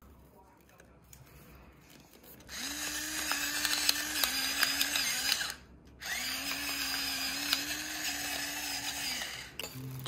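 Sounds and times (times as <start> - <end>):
electric pepper grinder running: 2.5 - 10.0.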